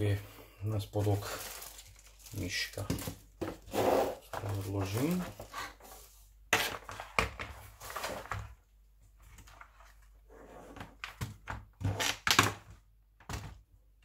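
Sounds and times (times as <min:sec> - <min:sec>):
packaging rustling: 0:01.0 - 0:03.3.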